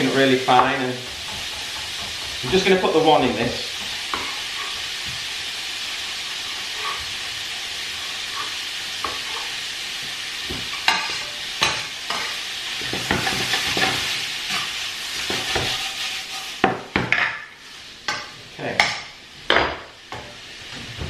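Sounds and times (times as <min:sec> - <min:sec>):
sausage and onion sizzling in a pan: 0:00.0 - 0:21.0
knife tapping on a pan: 0:18.1 - 0:20.3.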